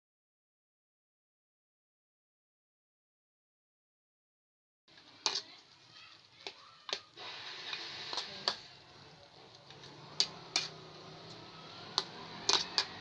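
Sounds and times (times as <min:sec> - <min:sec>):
food sizzling: 0:04.9 - 0:13.0
spatula clinking against wok: 0:10.2 - 0:11.4, 0:12.0 - 0:13.0.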